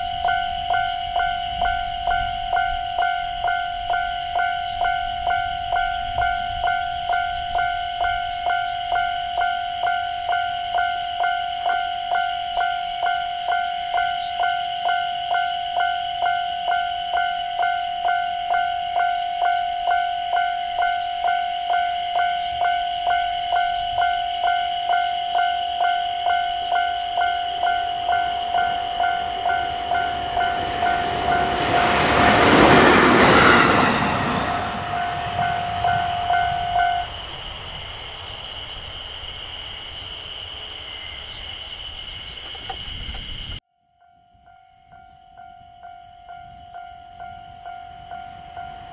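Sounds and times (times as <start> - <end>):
train passing loudly: 0.0 - 43.6, 45.7 - 48.9.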